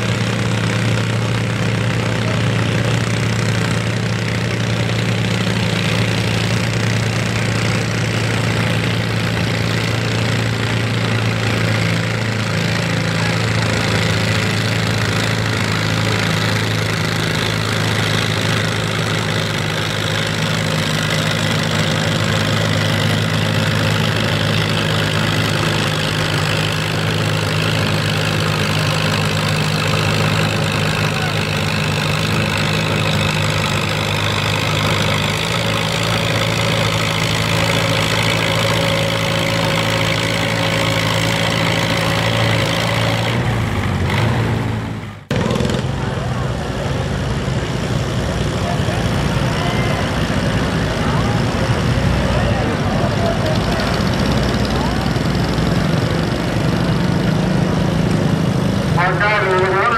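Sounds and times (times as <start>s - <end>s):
tractor engine under load: 0.0s - 59.9s.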